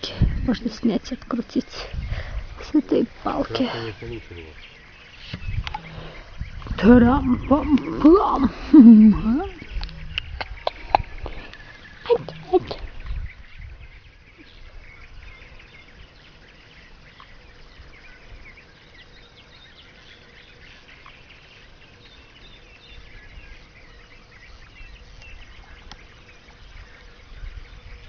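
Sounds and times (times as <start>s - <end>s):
microphone handling rumble: 0.0s - 15.4s
chorus of high chirps: 0.3s - 28.0s.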